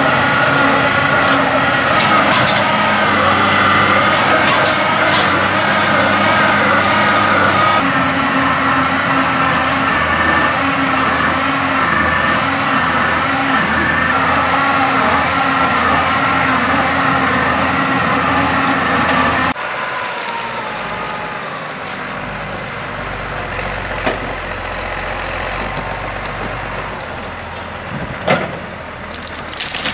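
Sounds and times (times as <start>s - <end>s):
tractor engine running: 0.0s - 29.9s
tree cracking: 29.0s - 29.9s.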